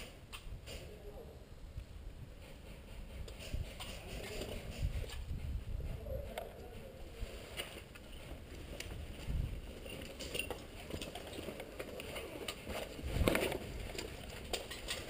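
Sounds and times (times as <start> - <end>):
footsteps crunching over rubble: 7.4 - 15.0
clinks of loose debris: 9.7 - 15.0.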